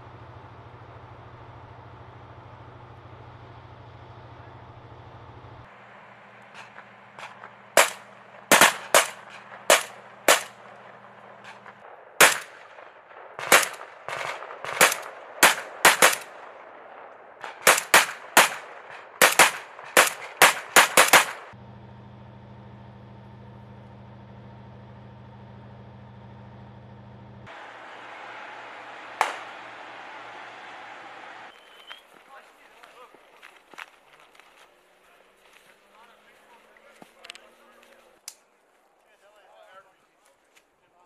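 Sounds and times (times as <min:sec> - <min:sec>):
low engine hum: 0:00.0 - 0:17.8, 0:18.8 - 0:34.8
rifle shots: 0:06.6 - 0:21.6, 0:28.9 - 0:30.1.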